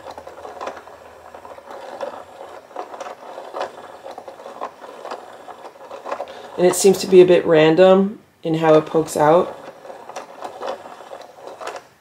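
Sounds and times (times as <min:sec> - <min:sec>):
toy clicks and rattles: 0:00.0 - 0:07.5, 0:08.5 - 0:12.0
toy motor whirring: 0:00.0 - 0:07.5, 0:08.5 - 0:12.0.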